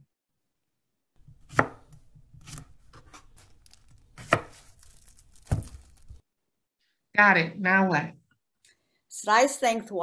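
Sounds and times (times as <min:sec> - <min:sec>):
knife chopping cucumber: 0:01.2 - 0:04.7.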